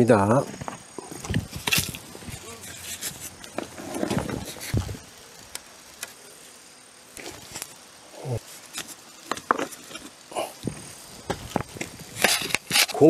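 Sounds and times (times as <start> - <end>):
small clicks of stone and grit: 0.5 - 4.8, 8.7 - 13.0.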